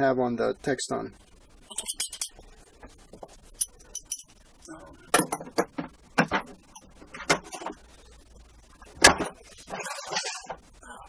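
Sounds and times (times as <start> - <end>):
metal tools clinking: 3.6 - 4.4.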